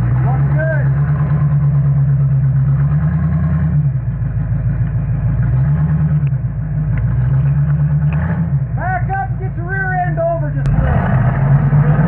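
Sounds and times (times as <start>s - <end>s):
buggy engine revving high: 0.0s - 12.0s.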